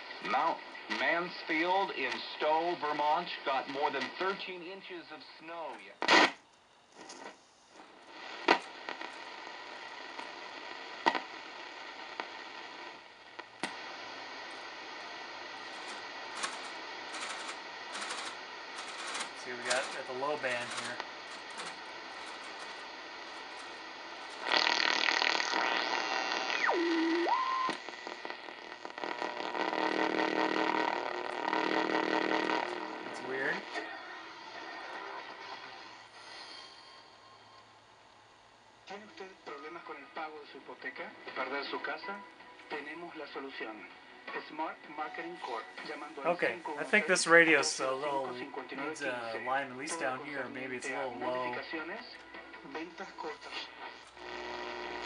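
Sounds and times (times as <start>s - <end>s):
radio static hiss: 0.0s - 55.0s
weak steady radio signal tone: 0.0s - 55.0s
loud radio burst: 13.7s - 35.8s, 46.4s - 48.3s.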